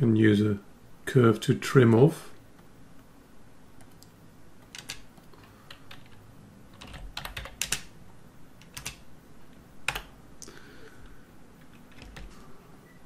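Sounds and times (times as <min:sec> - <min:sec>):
keyboard typing: 0:03.8 - 0:07.9, 0:08.6 - 0:09.0, 0:09.8 - 0:10.2, 0:11.6 - 0:12.4.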